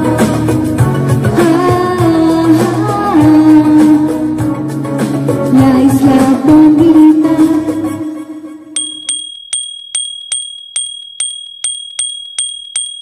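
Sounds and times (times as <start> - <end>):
bell dinging: 8.8 - 13.0.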